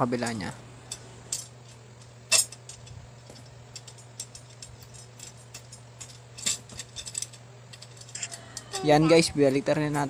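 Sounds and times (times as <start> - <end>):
metal spokes clicking: 0.9 - 8.9.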